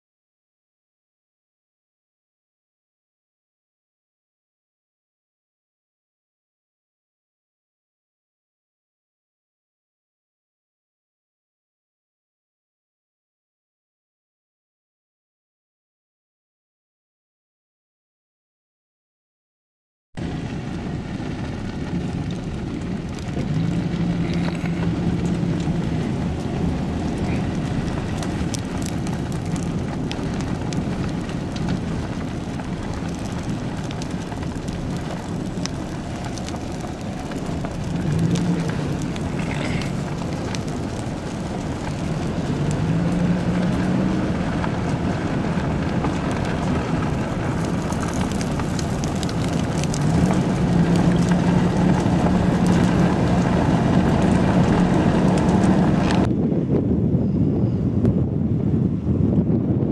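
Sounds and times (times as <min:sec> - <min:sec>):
faint fire crackles: 0:20.2 - 0:56.6
vehicle rumble: 0:20.2 - 0:59.9
wind noise: 0:20.2 - 0:59.9.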